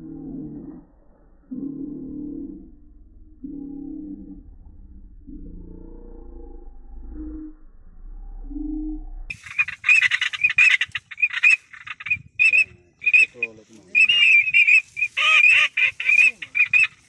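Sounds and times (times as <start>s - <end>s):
ducks calling: 9.3s - 17.0s.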